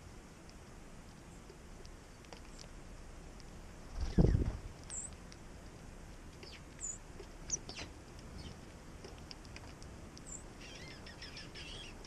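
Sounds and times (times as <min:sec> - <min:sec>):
songbirds chipping: 0:00.0 - 0:12.0
bird twittering: 0:10.2 - 0:12.0.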